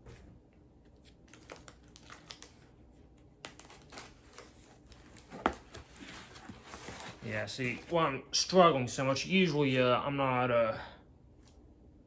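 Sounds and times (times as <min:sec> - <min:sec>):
cardboard and tape crinkling: 0:01.0 - 0:08.1.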